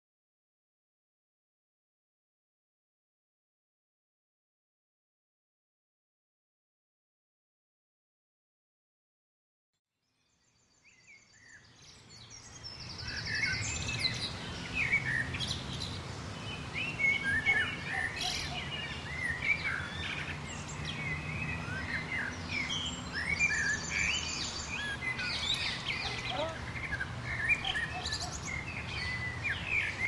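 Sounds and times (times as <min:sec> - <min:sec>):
birds chirping and trilling: 0:10.3 - 0:30.0.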